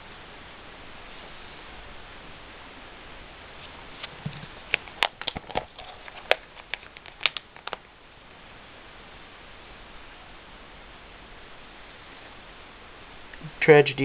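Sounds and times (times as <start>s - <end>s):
steady hiss: 0.0s - 14.0s
plastic sleeves crackling: 3.6s - 7.9s.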